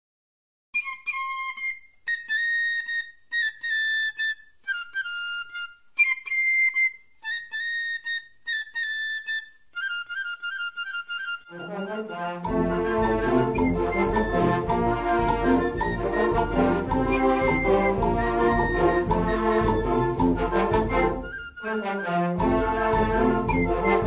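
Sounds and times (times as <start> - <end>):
solo flute-like melody: 0.8 - 24.0.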